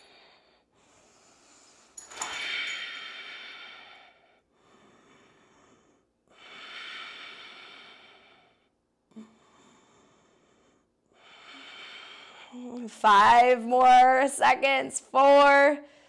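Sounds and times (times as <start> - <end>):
person breathing close to microphone: 0.0 - 12.6.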